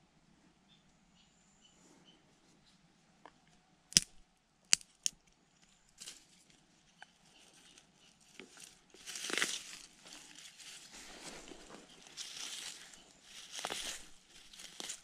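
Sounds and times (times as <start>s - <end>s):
rustling in dry grass: 5.9s - 15.0s.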